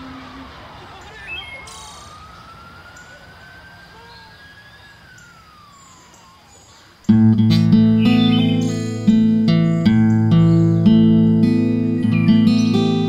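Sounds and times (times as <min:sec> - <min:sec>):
faint background noise: 0:00.0 - 0:13.0
siren wailing: 0:00.0 - 0:13.0
loud electric guitar music: 0:07.1 - 0:13.0.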